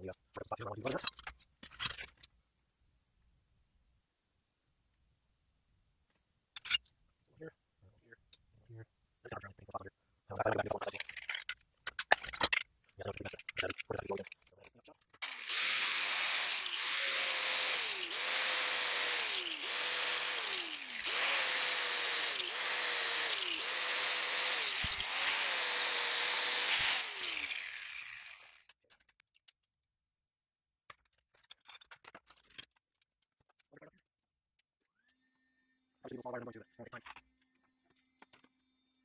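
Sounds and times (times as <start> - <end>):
grinder spinning down: 15.2 - 28.6
angle grinder grinding metal: 15.2 - 28.7.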